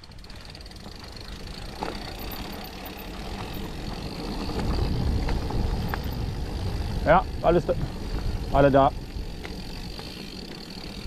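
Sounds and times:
tyres crunching over gravel: 0:00.0 - 0:11.0
wind rumble on microphone: 0:03.3 - 0:11.0.

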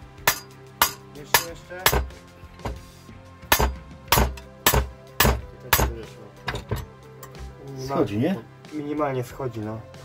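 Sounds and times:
hammer striking metal: 0:00.2 - 0:07.4.

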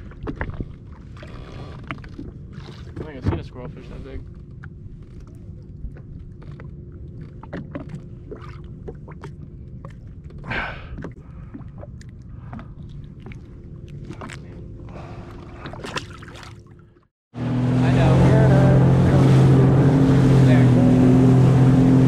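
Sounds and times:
engine idling hum: 0:16.5 - 0:22.0
jet ski engine running: 0:17.4 - 0:22.0.

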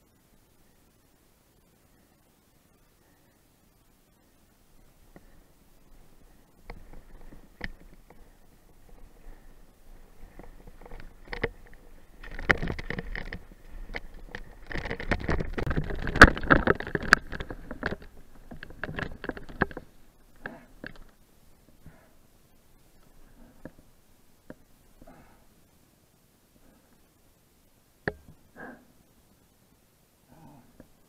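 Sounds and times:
bike rattling over bumps: 0:05.0 - 0:21.1.

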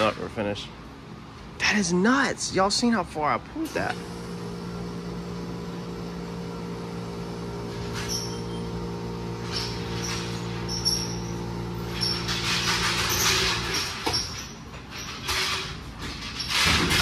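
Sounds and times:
electric motor humming: 0:04.0 - 0:12.9.

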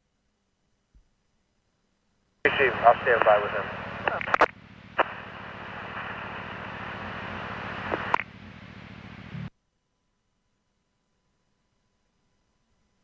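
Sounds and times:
radio static hiss: 0:02.4 - 0:09.5
low buzz: 0:02.5 - 0:12.6.

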